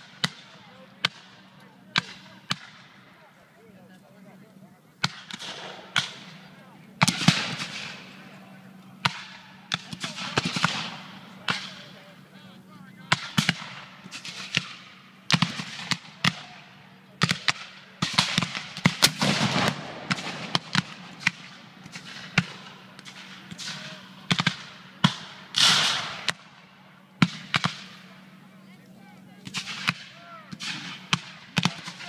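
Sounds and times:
cannon firing: 0.0s - 3.1s, 5.0s - 28.4s, 29.4s - 32.0s
musket shots: 5.0s - 8.3s, 9.0s - 12.2s, 13.1s - 26.6s, 27.2s - 28.1s, 29.4s - 32.0s.

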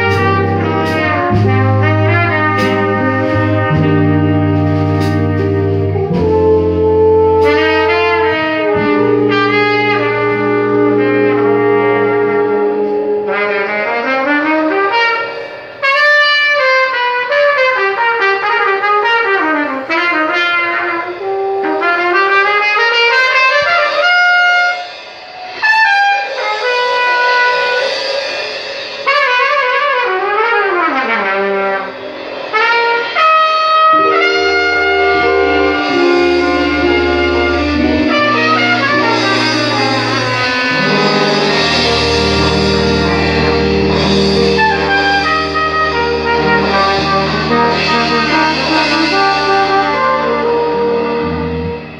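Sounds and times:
low sustained bass notes: 0.0s - 14.8s, 33.9s - 51.9s
brass horn solo: 0.0s - 51.9s
jazz ensemble playing: 0.0s - 51.9s.

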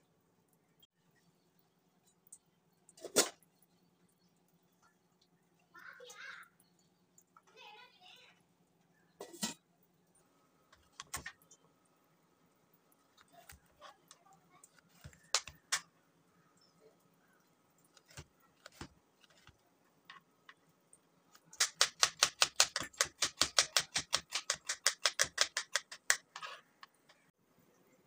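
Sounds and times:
knife chopping on plastic board: 14.8s - 15.8s, 18.0s - 19.5s, 21.5s - 26.4s.

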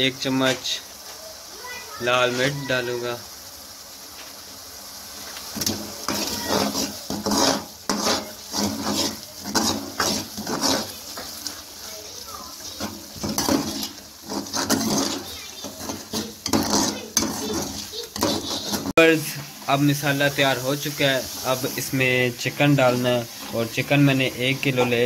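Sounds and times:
sauce sizzling: 0.0s - 25.0s
metal ladle scraping metal pan: 5.5s - 11.9s, 12.5s - 25.0s.

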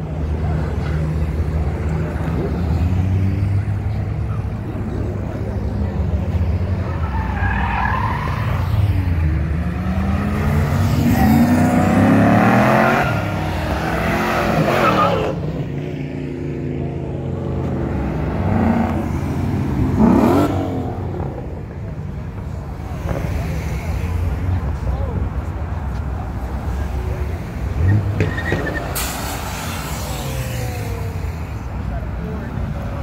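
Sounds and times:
cars accelerating hard: 0.2s - 21.8s.

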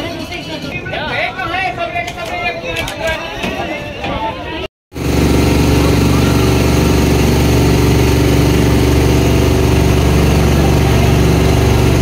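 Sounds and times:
boat engine running: 4.9s - 12.0s.

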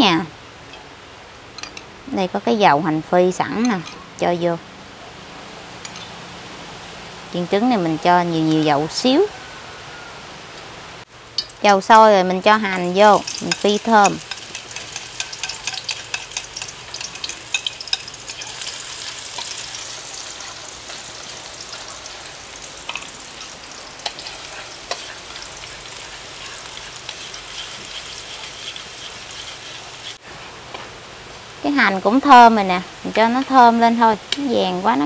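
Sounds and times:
onion sizzling in oil: 11.1s - 30.3s, 31.3s - 35.0s.

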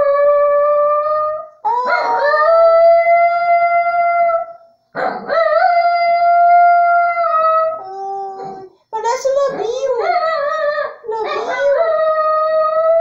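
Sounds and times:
small dog howling: 0.9s - 4.6s, 5.3s - 8.7s, 9.9s - 13.0s.

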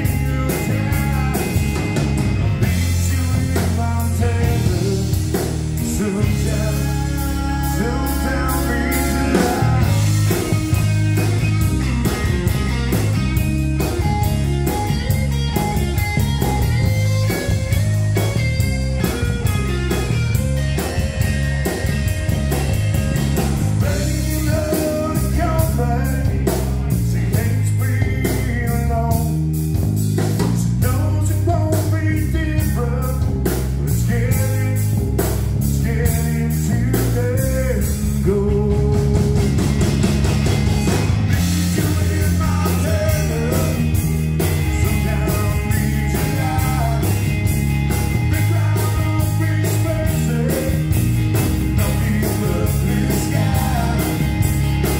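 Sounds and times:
man singing: 0.0s - 11.2s, 23.7s - 29.6s, 30.5s - 39.8s, 41.3s - 54.6s
bass guitar: 0.0s - 54.9s
drum kit beat: 0.0s - 54.9s
electric guitar: 0.0s - 54.9s.

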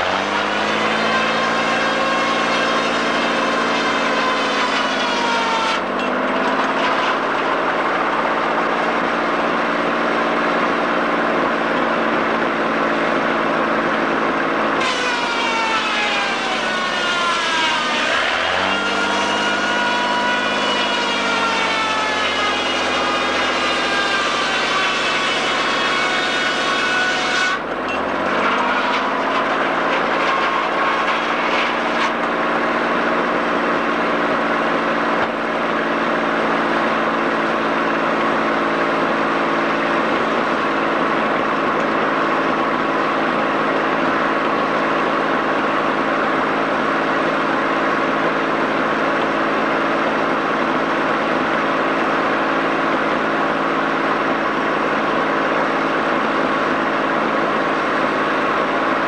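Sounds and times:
engine hum: 0.0s - 59.0s
sawmill machinery sawing log: 0.0s - 59.0s.

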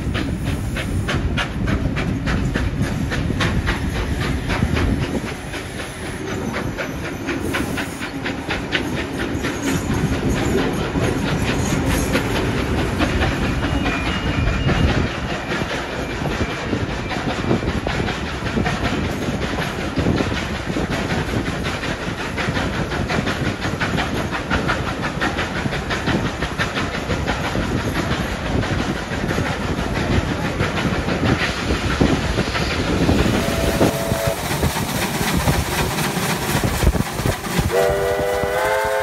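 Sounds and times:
rail and wheel noise: 0.0s - 39.0s
steam locomotive working: 0.0s - 39.0s
chime steam whistle: 37.7s - 39.0s.

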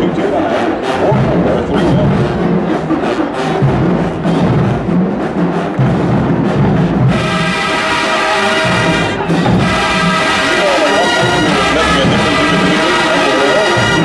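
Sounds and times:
snare and bass drum cadence: 1.1s - 14.0s
brass section sustained chord: 7.1s - 14.0s.

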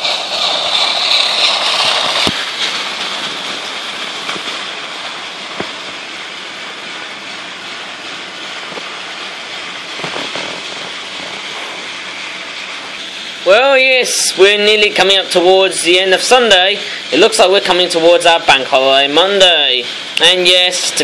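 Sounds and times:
toy train motors whirring: 0.0s - 5.2s.

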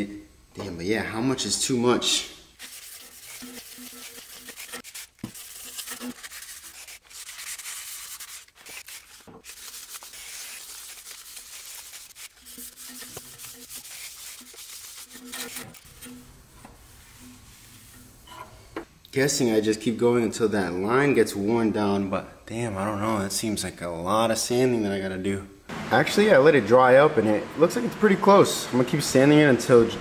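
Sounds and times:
wet sandpaper rubbing on metal: 2.6s - 16.3s.

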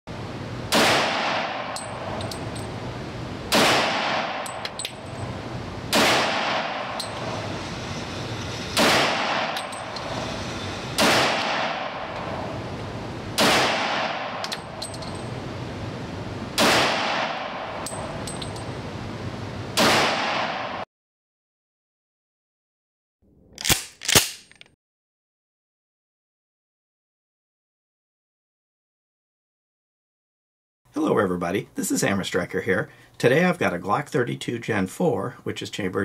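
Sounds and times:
pistol shots echoing: 0.7s - 1.8s, 3.5s - 4.7s, 5.9s - 7.0s, 11.0s - 12.2s, 13.4s - 14.8s, 16.6s - 17.8s
shell casings clinking: 1.7s - 2.7s, 4.4s - 5.3s, 6.9s - 7.3s, 9.5s - 10.1s, 14.4s - 15.3s, 17.8s - 18.7s, 23.5s - 24.7s.

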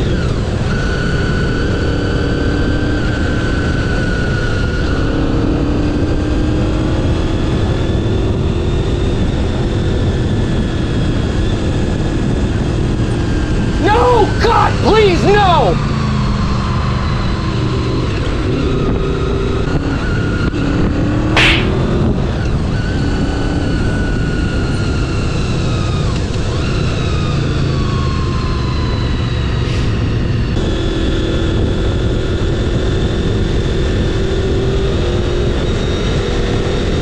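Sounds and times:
wind rushing: 21.2s - 22.4s
brief sharp noise: 21.4s - 22.0s.

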